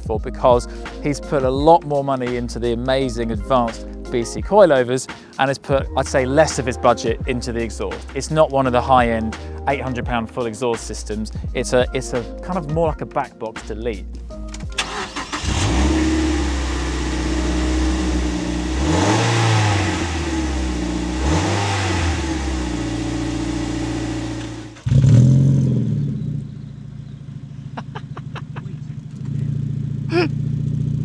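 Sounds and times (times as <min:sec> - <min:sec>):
car engine idling and revving: 0:14.5 - 0:31.0
car engine starting up: 0:14.5 - 0:31.0.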